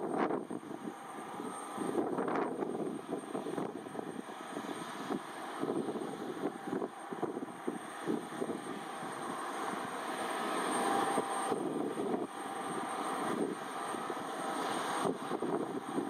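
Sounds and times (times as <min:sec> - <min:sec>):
jet engines whining: 0:00.0 - 0:16.0.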